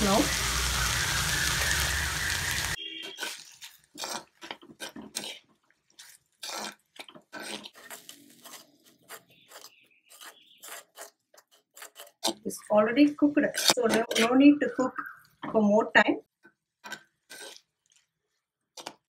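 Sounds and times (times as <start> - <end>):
vegetables sizzling in hot oil: 0.0 - 4.2
spoon scraping clay pot: 2.9 - 14.5, 16.8 - 18.0.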